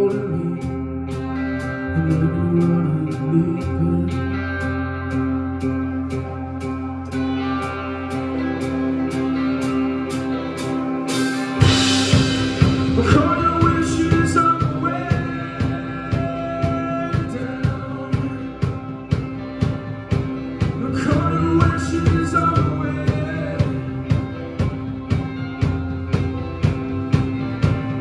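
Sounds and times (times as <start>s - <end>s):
man singing: 0.0s - 4.8s, 11.6s - 24.6s
electric guitars ringing: 0.0s - 28.0s
drum kit with cymbal crash: 8.4s - 28.0s.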